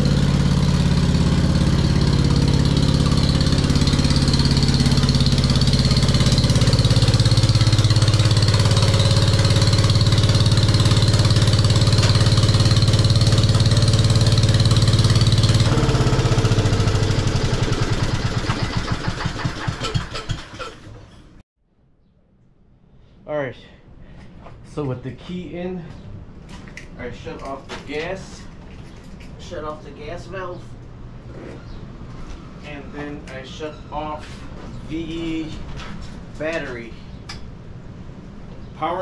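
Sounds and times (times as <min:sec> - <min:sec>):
tractor engine running: 0:00.0 - 0:21.0.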